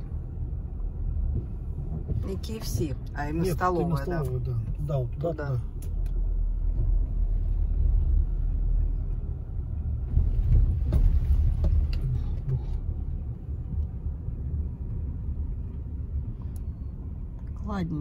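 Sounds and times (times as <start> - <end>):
car road and engine rumble: 0.0 - 18.0.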